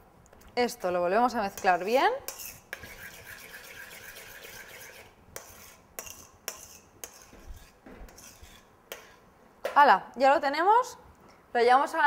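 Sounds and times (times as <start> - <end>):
stirring in a metal bowl: 0.6 - 9.3.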